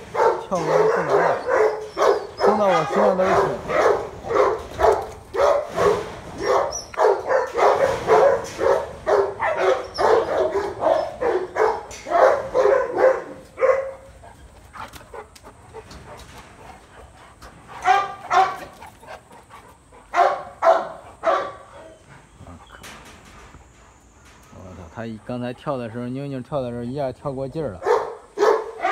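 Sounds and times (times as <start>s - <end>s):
dog barking: 0.0s - 14.1s, 17.8s - 18.8s, 20.1s - 22.0s, 27.8s - 28.9s.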